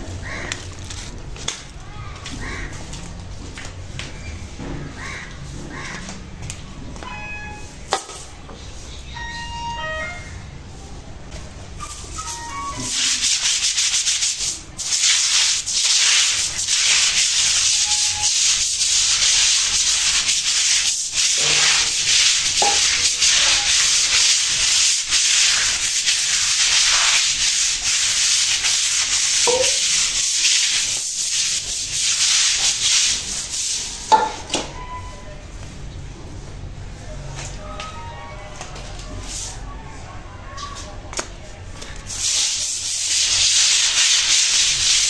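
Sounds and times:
stick broom scrubbing wet concrete: 0:00.0 - 0:04.1, 0:11.8 - 0:34.7, 0:38.6 - 0:39.7, 0:41.2 - 0:45.0.

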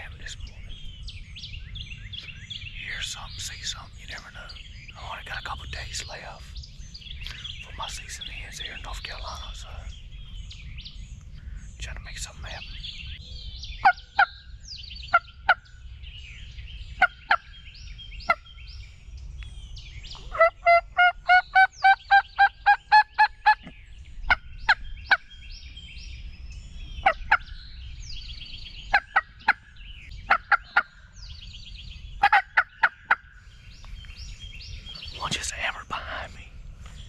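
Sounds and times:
faint songbirds singing: 0:00.0 - 0:37.0
turkey clucking: 0:20.3 - 0:23.7, 0:30.3 - 0:30.9, 0:32.2 - 0:33.2
turkey yelping: 0:20.3 - 0:23.7, 0:30.3 - 0:30.9, 0:32.2 - 0:33.2.

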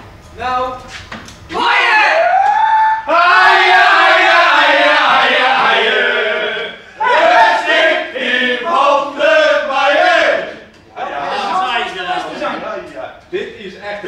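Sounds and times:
men chanting: 0:03.1 - 0:12.6.

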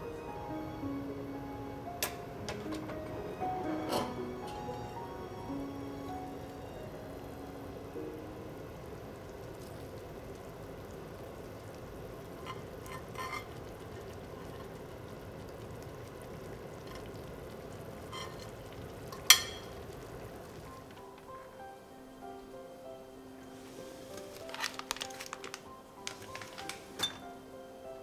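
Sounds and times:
sauce sizzling in a frying pan: 0:04.2 - 0:22.3.

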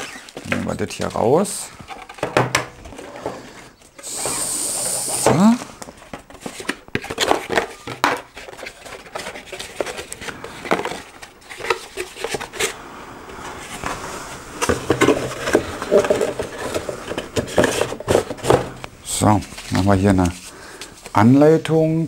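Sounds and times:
cardboard rustling and scraping: 0:00.0 - 0:12.8, 0:13.4 - 0:20.5
knocks on wooden desk: 0:02.2 - 0:02.7.

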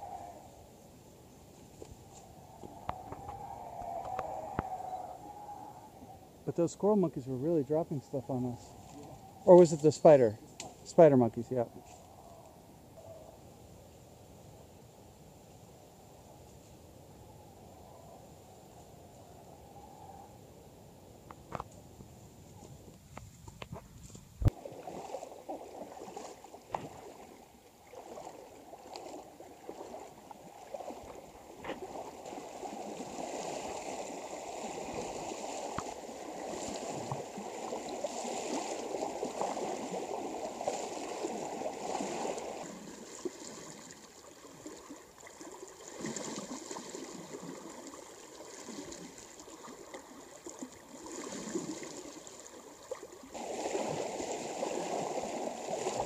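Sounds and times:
water splashing around wading legs: 0:24.4 - 0:56.0.

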